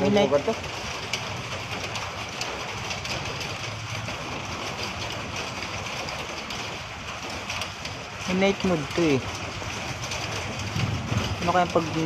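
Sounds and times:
steady rain falling: 0:00.0 - 0:12.0
low hum: 0:10.6 - 0:12.0.

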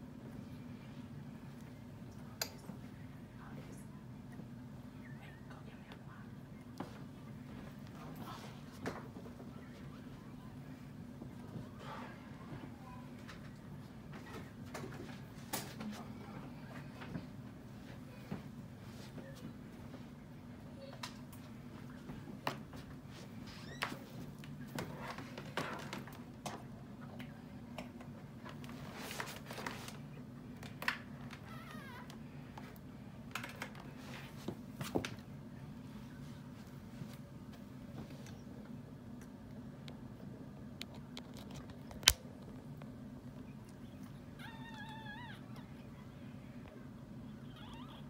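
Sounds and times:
steady low hum: 0:00.0 - 0:48.0
puppy squeaking: 0:44.4 - 0:45.8, 0:47.4 - 0:48.0.

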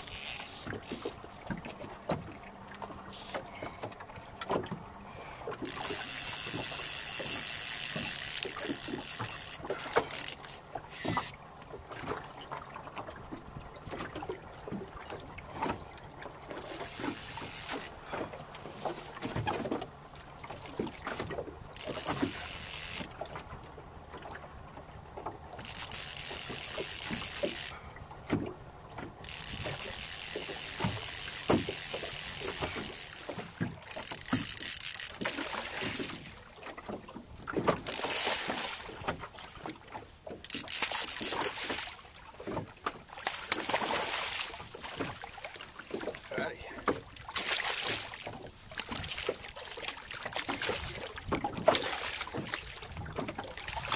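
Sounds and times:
fishing reel drag buzzing: 0:00.0 - 0:01.1, 0:03.1 - 0:03.4, 0:05.6 - 0:11.4, 0:16.6 - 0:18.0, 0:21.8 - 0:23.1, 0:25.6 - 0:27.8, 0:29.2 - 0:35.8, 0:37.7 - 0:38.6, 0:40.4 - 0:41.8.

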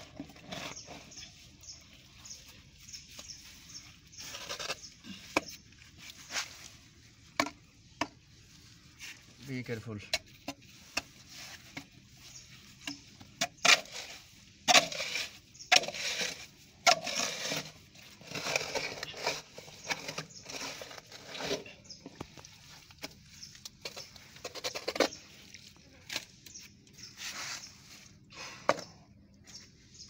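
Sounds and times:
metal plate scraping sludge: 0:00.0 - 0:02.3, 0:13.6 - 0:26.2.

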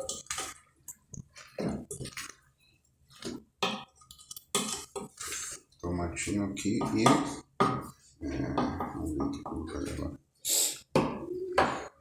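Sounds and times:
wet squishing food: 0:00.0 - 0:06.2
spoon scraping metal pot: 0:03.8 - 0:05.8.

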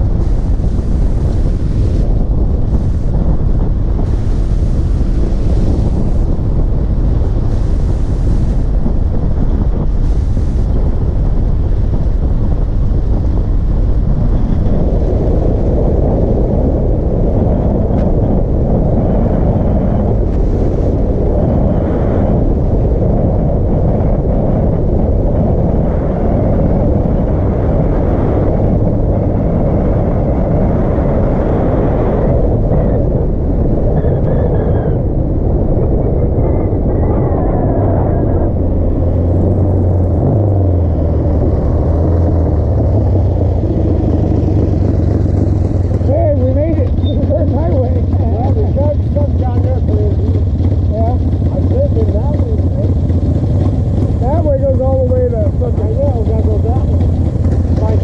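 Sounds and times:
road and vehicle noise: 0:00.0 - 0:58.0
wind buffeting microphone: 0:00.0 - 0:58.0.

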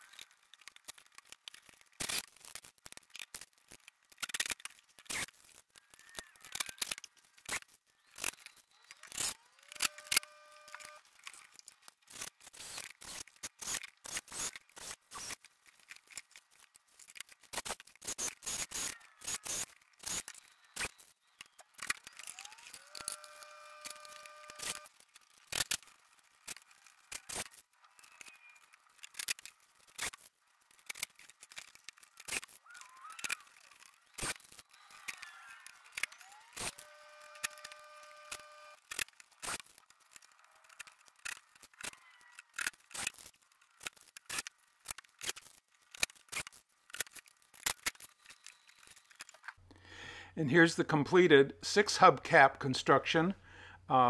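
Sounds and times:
cordless drill whining: 0:09.2 - 0:11.0, 0:22.1 - 0:24.9, 0:34.7 - 0:38.8.

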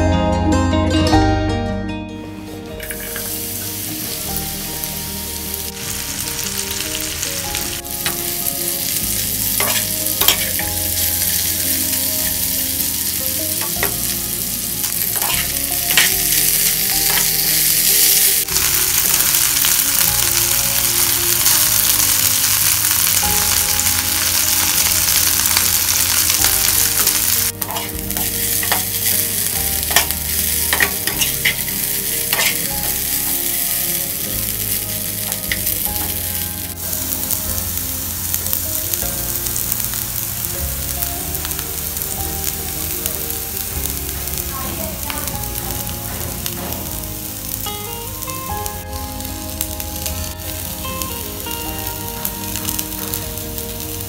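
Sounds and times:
vegetable slices sizzling in oil: 0:02.8 - 0:54.0
spatula scraping pan: 0:09.6 - 0:11.0, 0:27.0 - 0:33.2.

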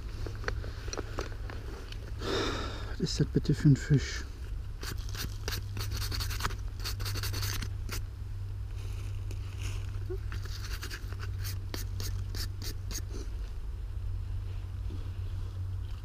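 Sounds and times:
fingers scraping soil: 0:04.8 - 0:08.0, 0:09.2 - 0:13.1.

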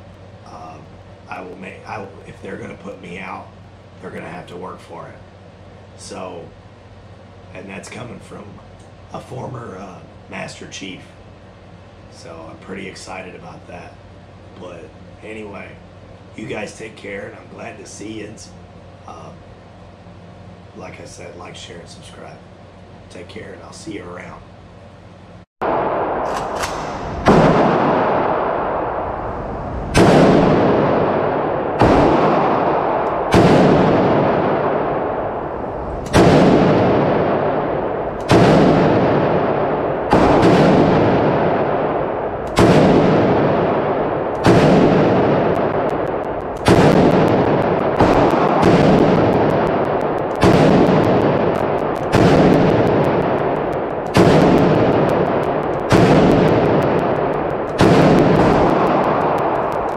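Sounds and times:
rifle shots echoing indoors: 0:25.6 - 0:59.9.

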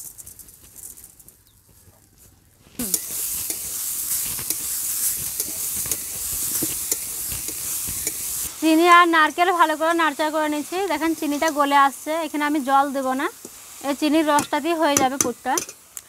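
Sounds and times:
coconut and sugar sizzling: 0:00.0 - 0:16.0
metal spatula scraping pan: 0:02.9 - 0:08.5
spatula ticking against metal: 0:05.3 - 0:08.3.

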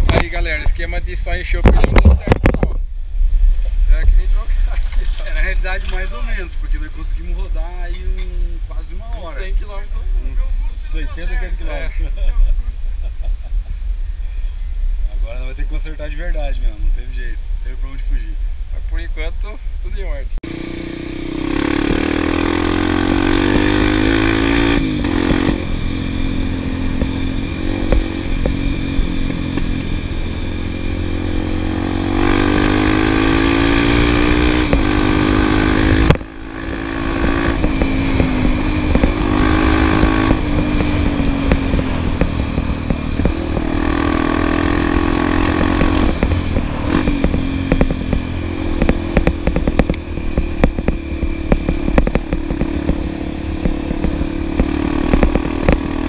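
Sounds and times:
wind rumbling on microphone: 0:00.0 - 0:20.4, 0:21.2 - 0:56.0
motorcycle engine revving: 0:20.4 - 0:56.0.

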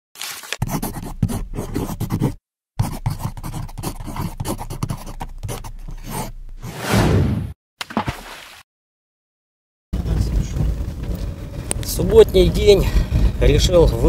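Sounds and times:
pencil sketching on paper: 0:00.6 - 0:06.7.

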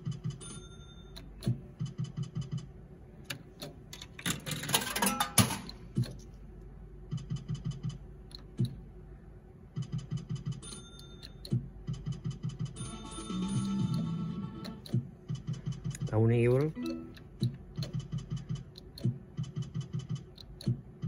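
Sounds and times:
slot machine ticking: 0:12.1 - 0:14.9, 0:16.2 - 0:19.0.

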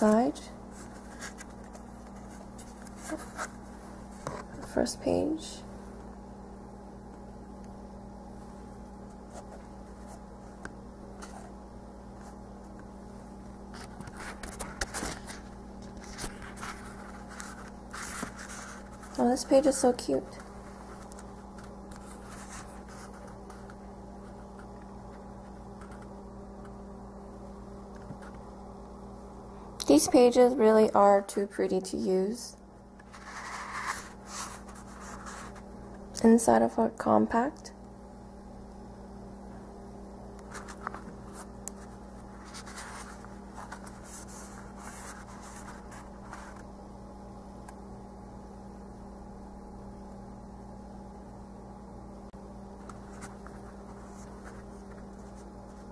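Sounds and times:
low electrical hum: 0:00.0 - 0:55.9
notebook pages rustling: 0:00.7 - 0:04.6, 0:13.7 - 0:24.7, 0:33.0 - 0:35.6, 0:40.5 - 0:46.7, 0:52.8 - 0:55.9
notebook pages turning: 0:13.8 - 0:19.2.

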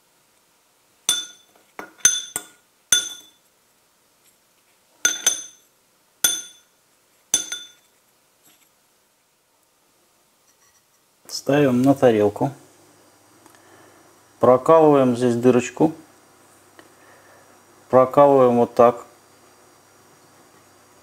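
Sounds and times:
teaspoon clinking against glass bowl: 0:01.1 - 0:03.4, 0:05.0 - 0:05.6, 0:07.4 - 0:07.8.

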